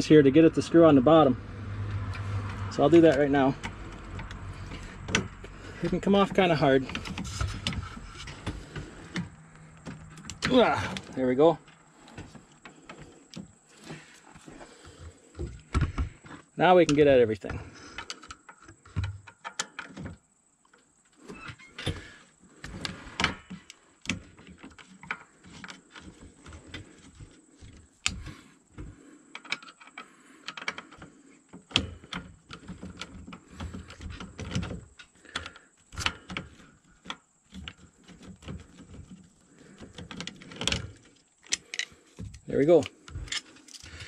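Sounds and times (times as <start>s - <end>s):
screwdriver clicking and scraping: 31.7s - 44.0s.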